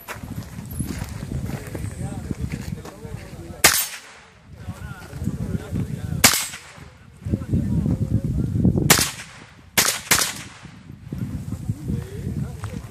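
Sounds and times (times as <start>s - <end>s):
rifle shots: 3.6s - 4.3s, 6.2s - 6.9s, 8.9s - 10.8s.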